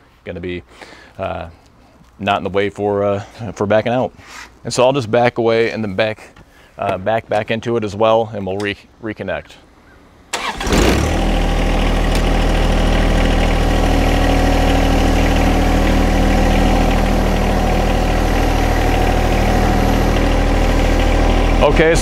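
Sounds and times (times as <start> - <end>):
tractor diesel engine: 10.3 - 22.0.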